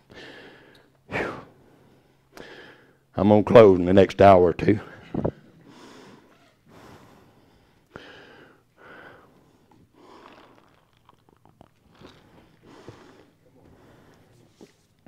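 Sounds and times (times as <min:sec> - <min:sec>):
faint breathing: 0:00.0 - 0:03.1, 0:04.9 - 0:10.8, 0:12.0 - 0:15.0.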